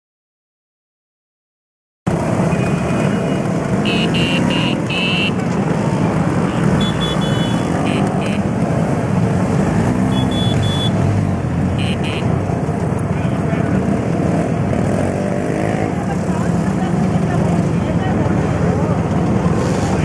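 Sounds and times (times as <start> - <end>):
scooter engines running: 2.1 - 20.0
short high horn beeps: 3.9 - 5.4, 6.8 - 8.4, 10.1 - 11.0.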